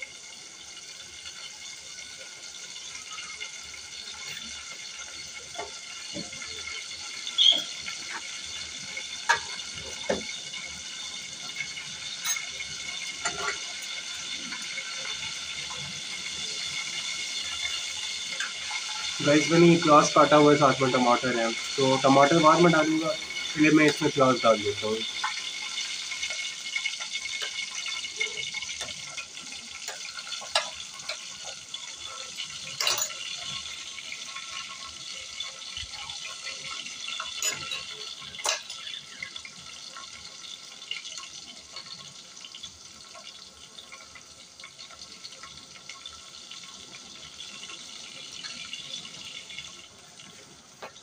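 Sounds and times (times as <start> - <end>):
onions sizzling in hot oil: 0.0 - 51.0.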